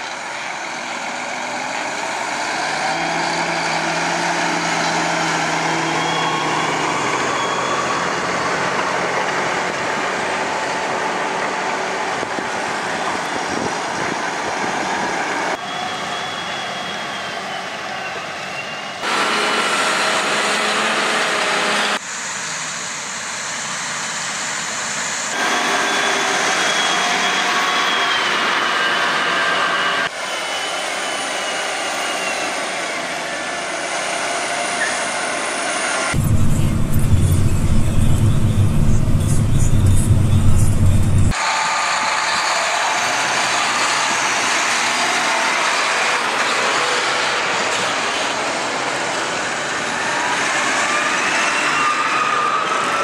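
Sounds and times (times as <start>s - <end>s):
tractor diesel engine under load: 0.0s - 15.6s, 19.0s - 22.5s, 35.6s - 41.6s
thin whine: 36.1s - 41.4s
deep engine rumble: 36.2s - 41.4s.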